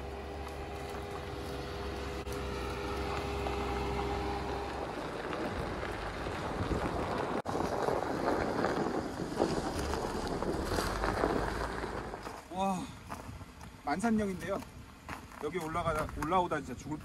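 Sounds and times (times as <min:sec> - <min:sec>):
car engine humming: 0:00.0 - 0:15.4
wind noise on microphone: 0:03.3 - 0:12.4.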